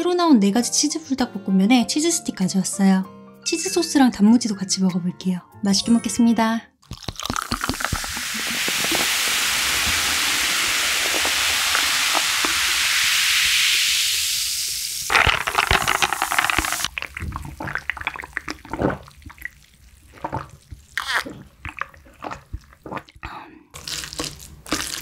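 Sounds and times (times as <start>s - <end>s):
person sipping: 6.8s - 14.2s, 15.1s - 25.0s
carbonation crackling: 6.8s - 23.1s
sparkling water fizzing pour: 6.9s - 21.0s.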